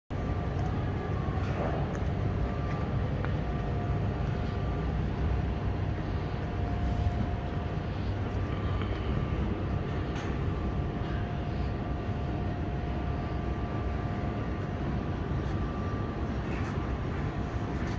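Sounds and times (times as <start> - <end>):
faint steady whine: 0.1 - 17.9
low rumble of machinery: 0.1 - 17.9.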